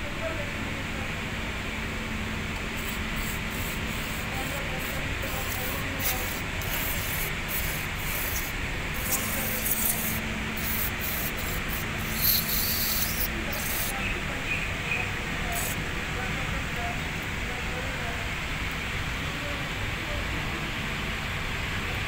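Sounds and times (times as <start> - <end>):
steady background noise: 0.0 - 22.0
aerosol spray hissing bursts: 2.8 - 13.9.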